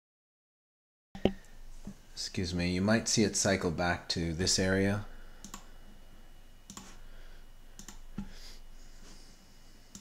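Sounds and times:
faint room hiss: 1.2 - 10.0
computer mouse clicks: 5.4 - 5.7, 6.7 - 7.0, 7.8 - 8.3.

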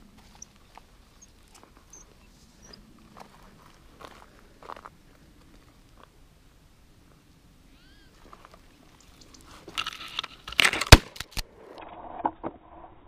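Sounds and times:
footsteps crunching dry brush: 0.0 - 6.2, 8.0 - 10.9.

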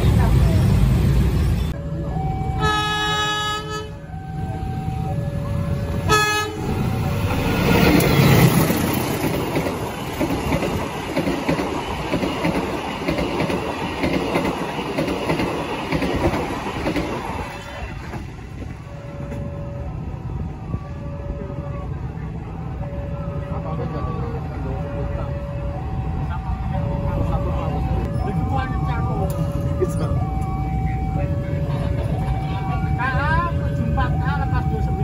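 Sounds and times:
train wagons rumbling: 0.0 - 35.0
locomotive horn blasts: 2.6 - 4.0, 6.1 - 6.9.

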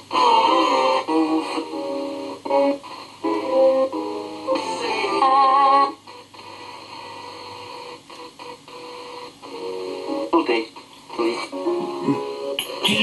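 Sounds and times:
chopped radio music and singing: 0.0 - 13.0
radio static: 10.0 - 13.0.

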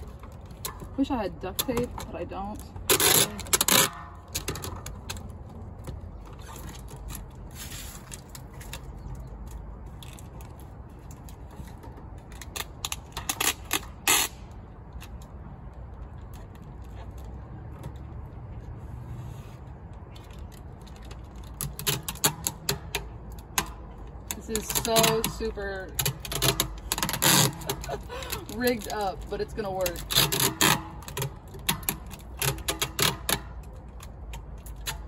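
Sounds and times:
adhesive tape ripping off roll: 12.3 - 14.6, 26.0 - 29.0.

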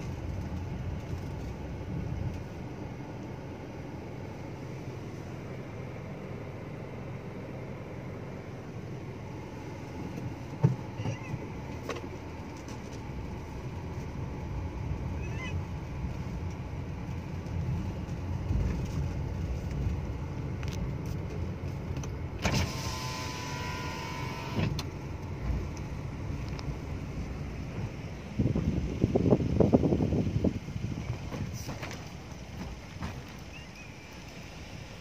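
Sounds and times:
car road and engine noise: 0.0 - 35.0
power window motor whining: 22.4 - 25.0.

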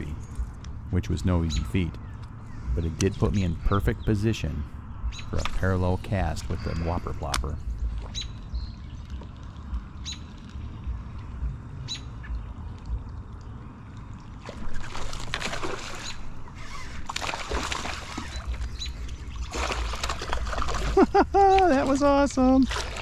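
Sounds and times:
bird chirping: 0.0 - 10.8, 11.8 - 12.5, 18.2 - 19.6
fish splashing in water: 7.8 - 23.0.

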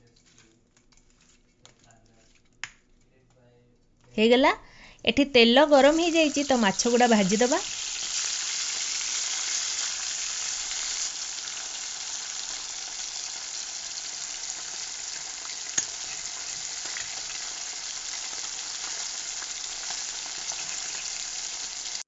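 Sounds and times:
fish sizzling in hot oil: 5.7 - 22.0
metal spatula click on pan: 15.7 - 16.0.

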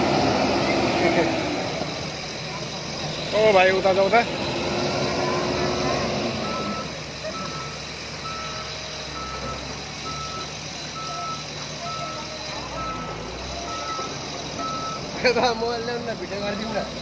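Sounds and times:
diesel engines humming: 0.0 - 17.0
reversing alarm beeping: 5.0 - 15.4.

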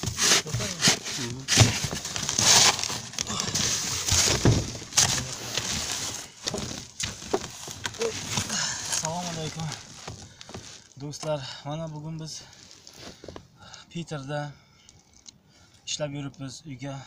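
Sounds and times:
shovel scraping packed snow: 0.0 - 1.8.

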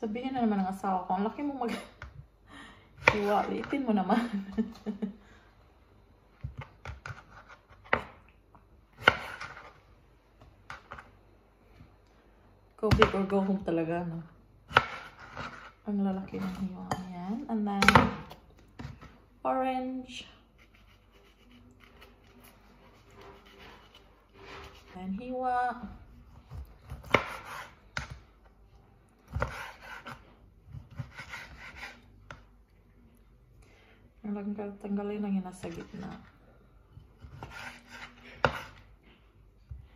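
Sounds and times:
knife chopping on wooden board: 14.7 - 15.7, 26.4 - 28.2, 29.3 - 32.0, 37.2 - 38.8.

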